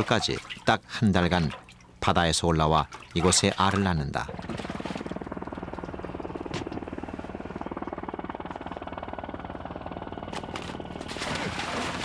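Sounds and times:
small boat engine idling: 3.1s - 12.0s.

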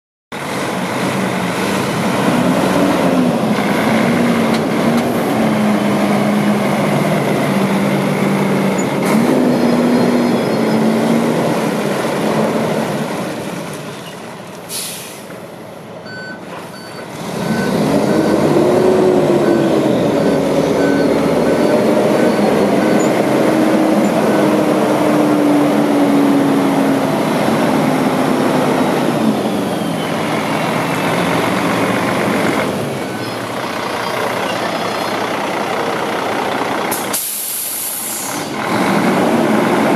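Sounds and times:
truck diesel engine: 0.3s - 39.9s
air brake hissing: 14.7s - 15.4s, 36.9s - 38.5s
reverse alarm beeping: 19.4s - 23.2s.

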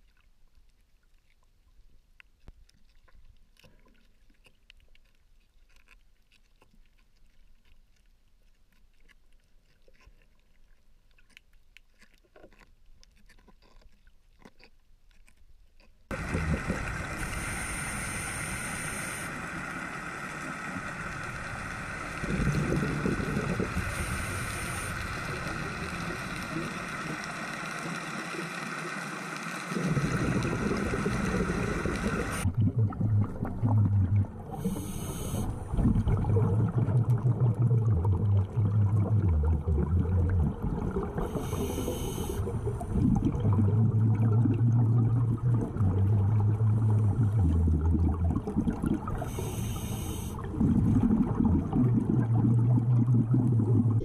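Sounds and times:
faint underwater crackling: 0.0s - 54.0s
steady hum and hiss: 16.1s - 32.6s, 33.2s - 54.0s
faint whining tones: 16.1s - 36.9s.

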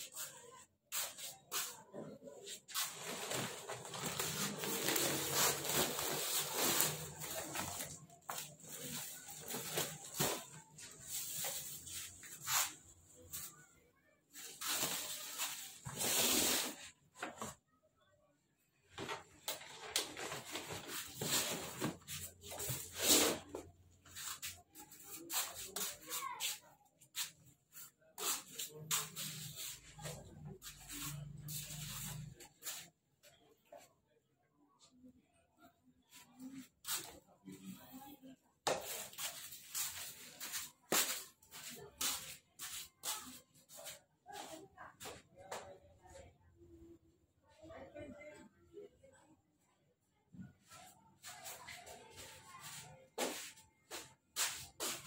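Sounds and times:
plastic sack rustling: 2.7s - 12.7s, 19.5s - 23.6s.

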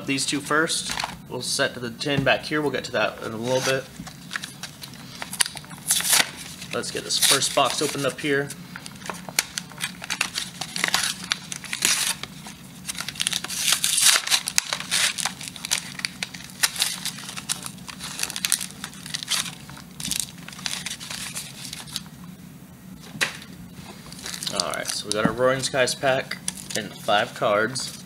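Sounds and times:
packaging tearing and crinkling: 3.4s - 8.2s, 8.8s - 22.1s, 24.1s - 25.2s, 26.4s - 27.0s.

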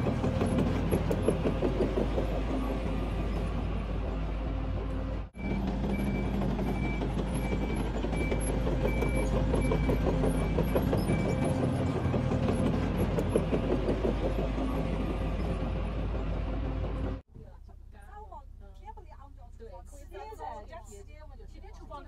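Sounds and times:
machine engine running: 0.0s - 17.2s
high-pitched warning alarm beeping: 5.4s - 12.2s.

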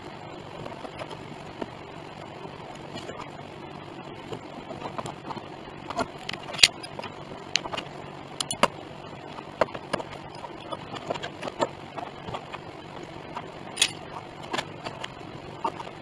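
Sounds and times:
metal clamps clinking on wood: 13.8s - 14.0s.

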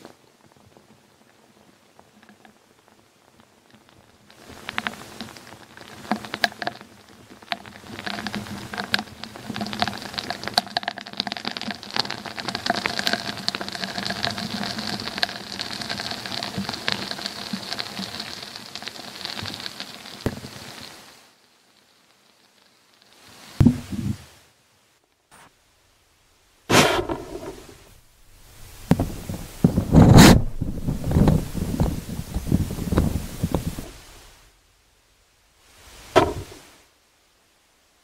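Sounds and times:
crackling and pattering: 0.0s - 24.2s, 26.7s - 34.4s, 35.9s - 36.8s
faint steady hum: 0.0s - 38.0s
low thump: 23.6s - 24.2s, 36.2s - 36.6s.

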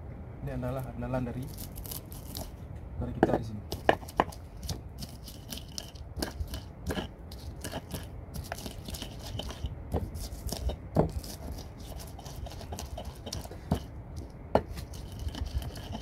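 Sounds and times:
pestle pounding in stone mortar: 3.2s - 16.0s
stone knocking on stone: 13.2s - 13.9s, 14.5s - 14.8s.

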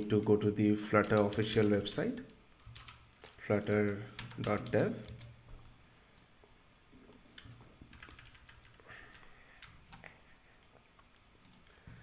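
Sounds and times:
keyboard and mouse clicks: 2.6s - 5.3s, 7.1s - 10.2s, 11.4s - 11.8s.

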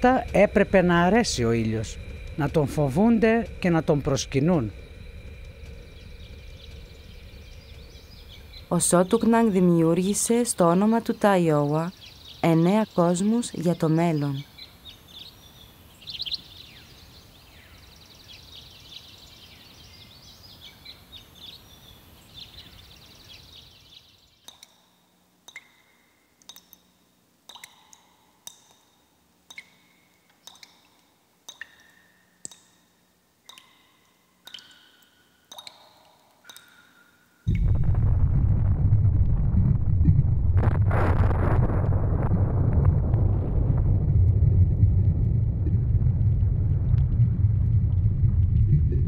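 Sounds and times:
small birds chirping: 0.0s - 26.9s
faint outdoor ambience: 0.0s - 49.0s.

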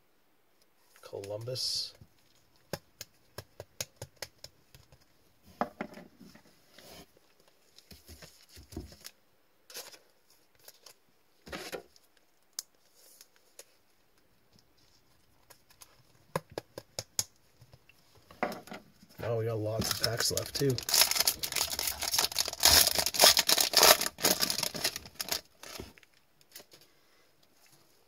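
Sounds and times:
soft scraping rustles: 6.2s - 8.7s.

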